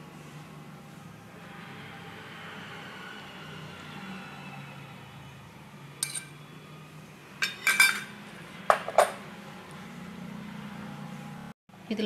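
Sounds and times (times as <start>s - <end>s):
spoon clinking steel tumbler: 6.0s - 6.4s, 7.4s - 8.2s.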